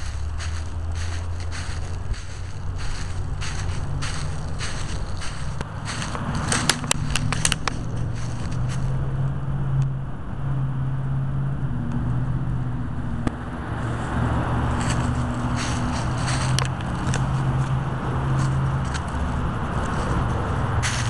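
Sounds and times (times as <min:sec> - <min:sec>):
sharp clicks and crackles: 0:00.0 - 0:08.9, 0:14.8 - 0:17.8
low engine hum: 0:00.0 - 0:21.0.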